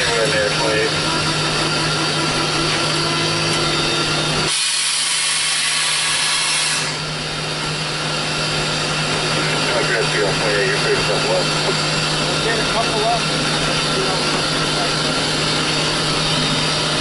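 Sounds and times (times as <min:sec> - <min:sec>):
steam locomotive hiss and rattle: 0:04.5 - 0:07.0.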